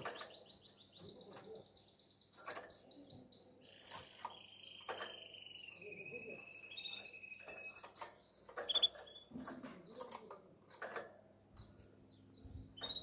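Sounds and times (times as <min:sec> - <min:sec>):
canary chirps and clicks: 0:00.0 - 0:13.0
canary whistling: 0:04.3 - 0:09.3, 0:12.6 - 0:13.0.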